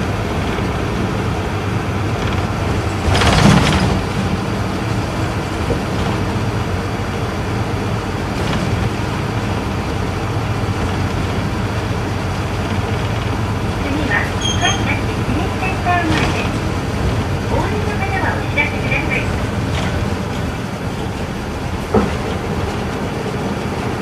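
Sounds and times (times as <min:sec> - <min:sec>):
bus diesel engine running: 0:00.0 - 0:24.0
road noise: 0:00.0 - 0:24.0
rush of noise: 0:00.0 - 0:24.0.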